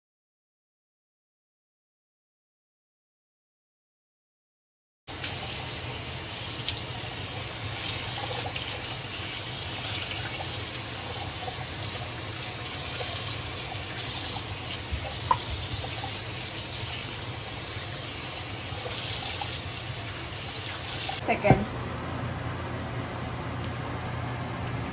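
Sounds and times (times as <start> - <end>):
faucet running into sink: 5.1 - 21.3.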